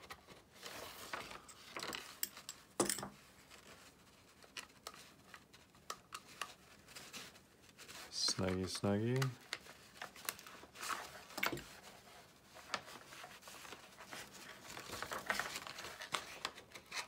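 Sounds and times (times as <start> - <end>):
paper rustling in gear: 0.0 - 2.2, 6.2 - 17.0
plastic parts handled: 0.0 - 17.0.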